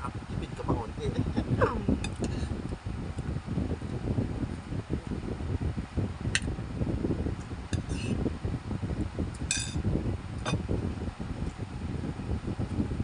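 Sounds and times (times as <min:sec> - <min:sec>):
steady low rumble: 0:00.0 - 0:13.0
metal spoon clinking on a plate: 0:09.5 - 0:09.8.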